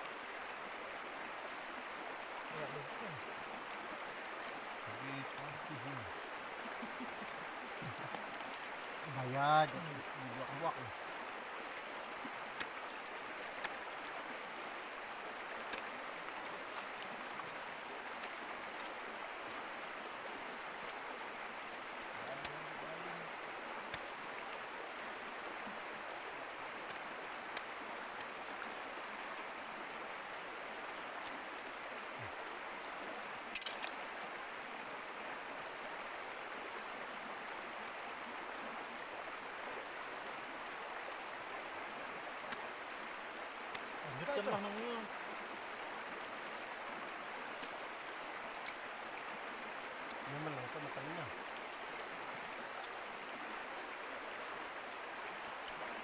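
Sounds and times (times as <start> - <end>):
stream flowing: 0.0 - 56.0
faint clicks: 15.6 - 19.0, 23.8 - 24.2, 26.8 - 29.5, 31.2 - 31.8, 32.8 - 34.0, 43.6 - 43.9, 47.5 - 48.8, 50.0 - 50.3, 55.6 - 55.9.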